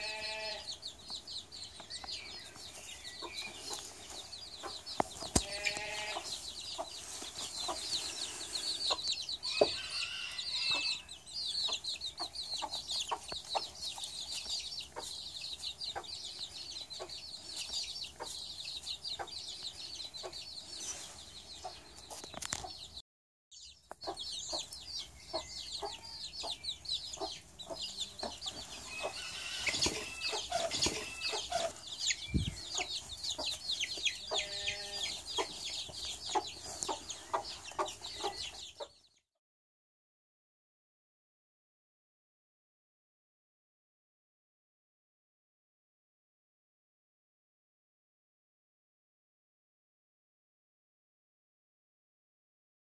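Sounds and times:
baby chicks peeping: 0.0s - 23.0s, 23.6s - 39.2s
hen clucking: 2.4s - 20.5s, 23.9s - 39.0s.

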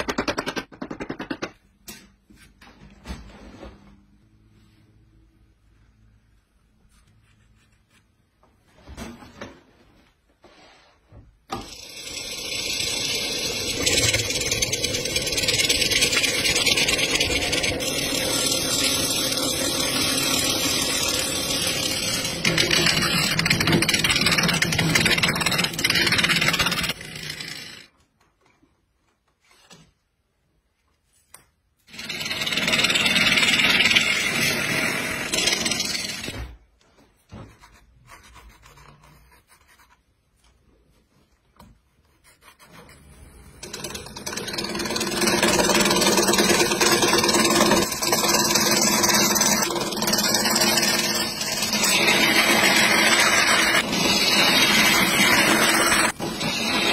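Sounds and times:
wood lathe gouge cutting: 11.6s - 27.9s, 31.9s - 36.3s, 43.6s - 56.9s.

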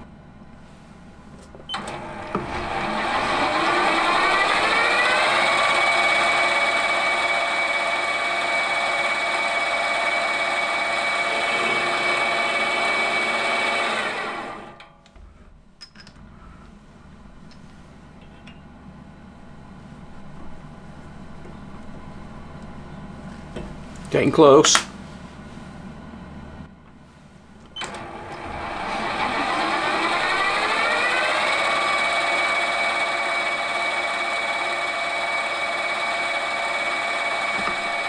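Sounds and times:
lathe motor whining: 1.7s - 14.8s, 27.7s - 38.0s.

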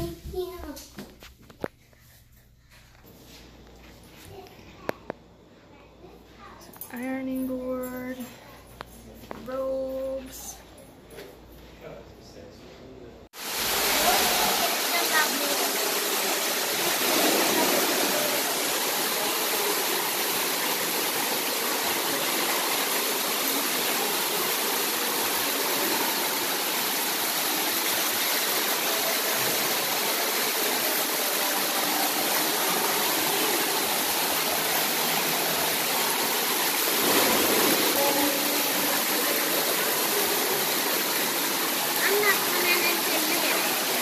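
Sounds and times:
hot tub jets churning: 13.4s - 44.0s
water splashing into pool: 13.4s - 44.0s.

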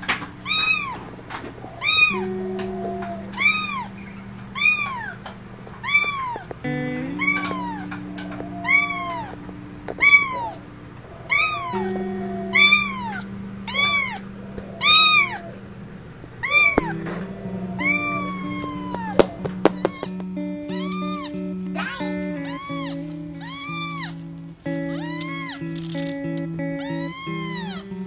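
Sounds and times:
background music low notes: 0.0s - 28.0s
kitten meowing: 0.4s - 1.0s, 1.8s - 4.0s, 4.6s - 5.2s, 5.8s - 6.5s, 7.1s - 10.6s, 11.3s - 15.6s, 16.4s - 17.1s, 17.7s - 24.2s, 24.9s - 25.7s, 26.8s - 27.9s.

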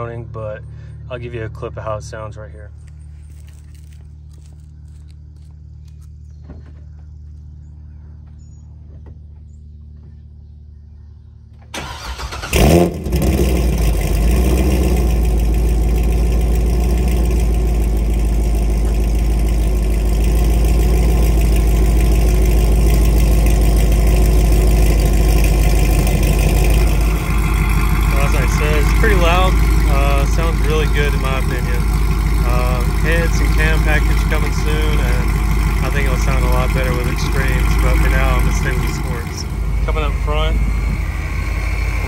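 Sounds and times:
car engine firing and idling: 11.5s - 42.0s
starter cranking: 11.8s - 41.1s.

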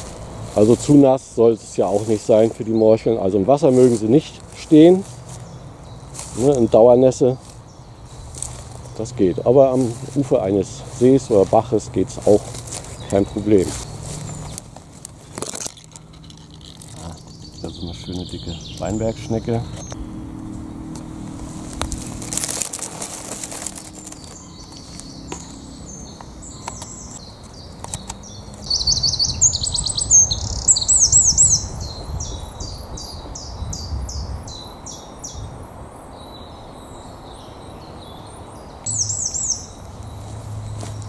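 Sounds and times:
birds chirping softly: 0.0s - 41.0s
short rustle: 3.5s - 5.5s, 6.1s - 6.8s, 7.4s - 9.0s, 9.6s - 17.4s, 21.3s - 25.6s
songbird singing descending notes: 16.2s - 22.1s, 23.6s - 41.0s.

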